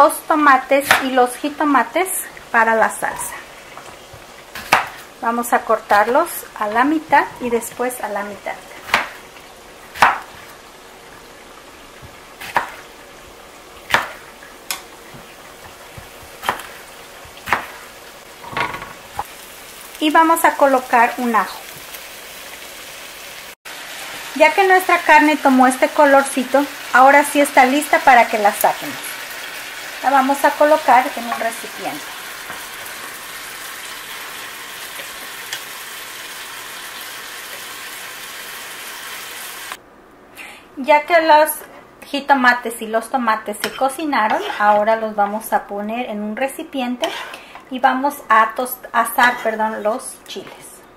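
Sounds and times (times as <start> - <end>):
frying sizzle in pan: 0.0 - 39.8, 47.0 - 47.8.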